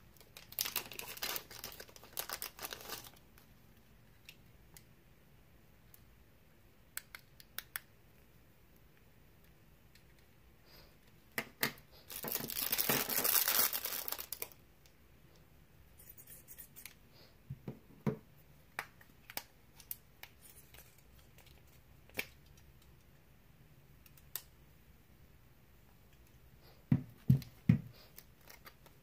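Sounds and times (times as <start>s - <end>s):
plastic bags crinkling: 0.2s - 3.2s, 12.1s - 14.6s.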